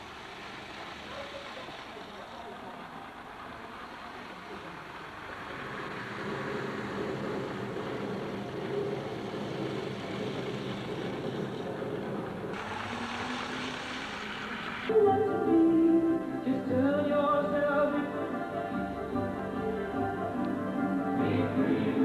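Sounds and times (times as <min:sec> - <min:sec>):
model train whirring on track: 0:00.0 - 0:15.0
music with singing: 0:14.9 - 0:22.0.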